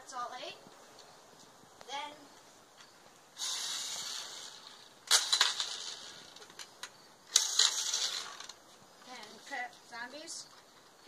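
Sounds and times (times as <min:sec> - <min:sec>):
toy blaster hissing bursts: 0:03.4 - 0:06.4, 0:07.3 - 0:08.5.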